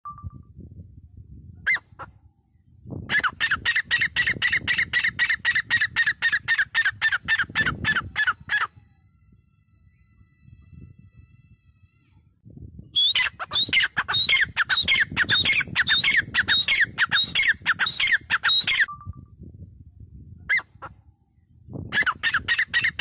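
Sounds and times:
bird calling harsh notes: 0:03.1 - 0:08.9, 0:13.0 - 0:19.1, 0:21.9 - 0:23.0.

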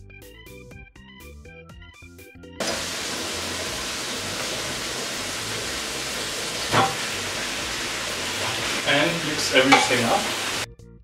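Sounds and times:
liver sizzling in hot oil: 0:02.6 - 0:10.7.

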